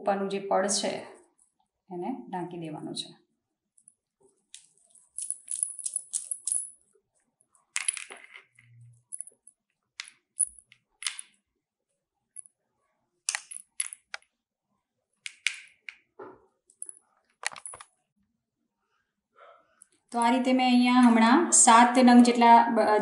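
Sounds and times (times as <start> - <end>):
bangles clinking: 3.7 - 11.4, 13.3 - 14.2, 16.7 - 18.0.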